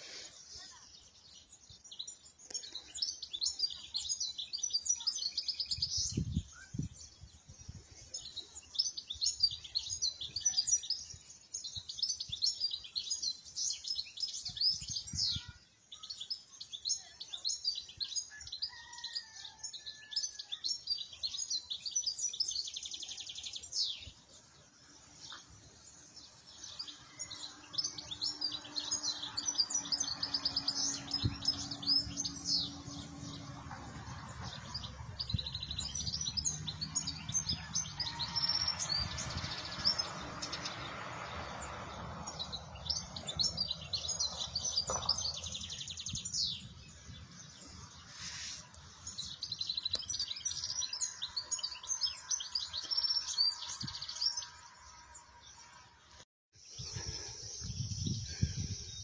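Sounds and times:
goldfinch twittering song: 0:00.2 - 0:33.6, 0:34.4 - 0:55.7.

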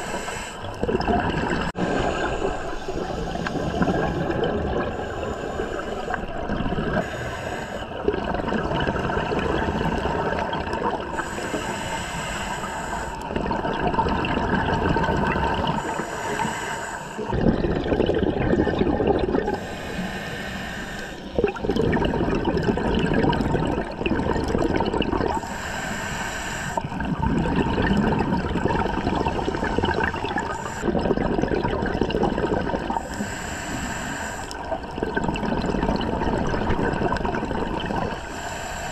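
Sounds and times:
regulator inhalation hiss: 0:00.0 - 0:00.7, 0:07.0 - 0:07.9, 0:11.2 - 0:13.2, 0:15.8 - 0:17.3, 0:19.6 - 0:21.4, 0:25.4 - 0:26.9, 0:30.4 - 0:30.9, 0:33.0 - 0:34.6, 0:38.2 - 0:38.9
exhaled bubbles rushing: 0:00.6 - 0:07.0, 0:07.8 - 0:11.2, 0:13.2 - 0:16.0, 0:17.2 - 0:19.6, 0:21.3 - 0:25.5, 0:26.8 - 0:33.1, 0:34.6 - 0:38.3.

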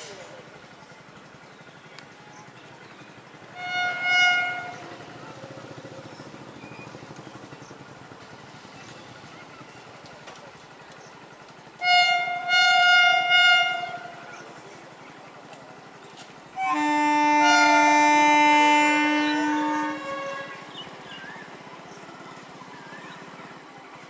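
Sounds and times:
high train horn blast: 0:03.5 - 0:05.3, 0:11.8 - 0:14.3, 0:16.6 - 0:20.8
low chord train horn: 0:03.5 - 0:05.4, 0:11.8 - 0:14.4, 0:16.5 - 0:20.9.

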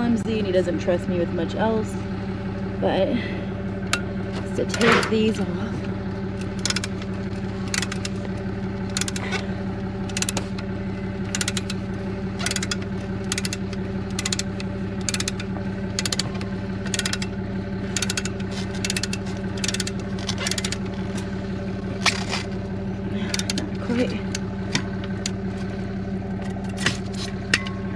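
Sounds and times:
engine hum: 0:00.0 - 0:27.9
ratchet wrench clicking: 0:06.4 - 0:07.0, 0:07.7 - 0:08.2, 0:08.9 - 0:09.2, 0:10.1 - 0:10.4, 0:11.3 - 0:11.8, 0:12.4 - 0:17.3, 0:17.9 - 0:20.8.

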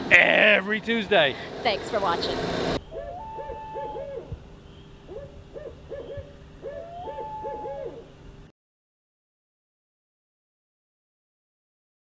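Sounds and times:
owl hooting: 0:02.8 - 0:08.2.

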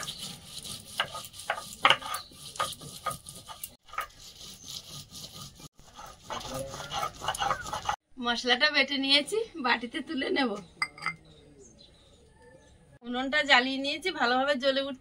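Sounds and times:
stone roller scraping on stone: 0:00.0 - 0:08.0.

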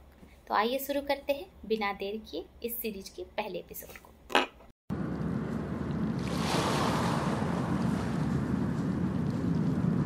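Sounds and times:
low rumble: 0:04.9 - 0:10.0
steady rushing noise: 0:05.0 - 0:10.0.

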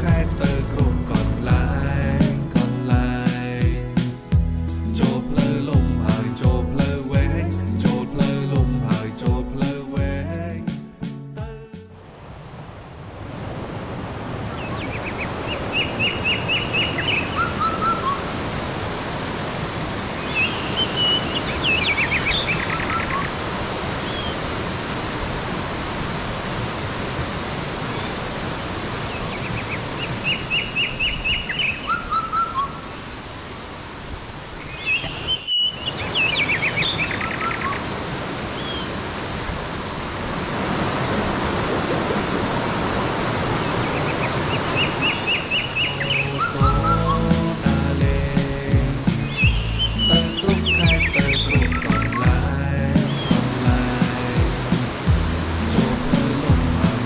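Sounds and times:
stream rushing over rocks: 0:12.0 - 0:32.4, 0:34.2 - 0:57.0
songbirds chirping and trilling: 0:14.5 - 0:24.4, 0:29.0 - 0:39.0, 0:42.8 - 0:57.0.

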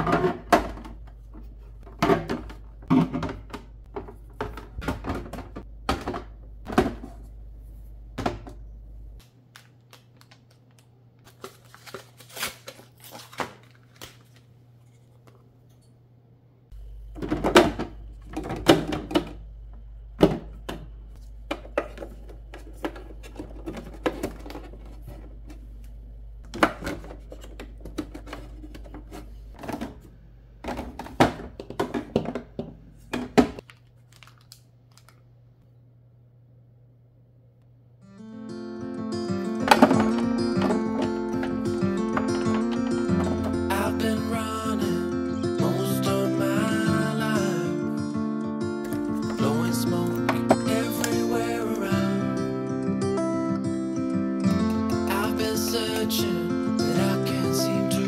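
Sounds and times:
plastic bottles knocking together: 0:00.0 - 0:01.2, 0:01.8 - 0:07.2, 0:17.2 - 0:19.4, 0:20.2 - 0:25.3, 0:26.5 - 0:30.0, 0:30.6 - 0:34.4, 0:39.5 - 0:44.0.

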